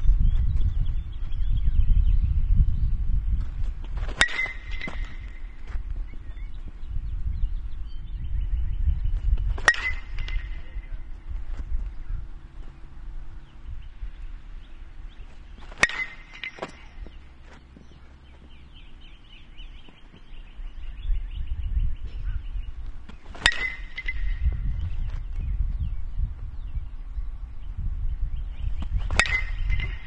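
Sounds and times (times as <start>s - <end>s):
wind rumble on microphone: 0.0s - 30.0s
metal bat pinging ball: 4.1s - 6.3s, 9.6s - 11.2s, 15.5s - 20.4s, 23.1s - 25.0s, 28.8s - 30.0s.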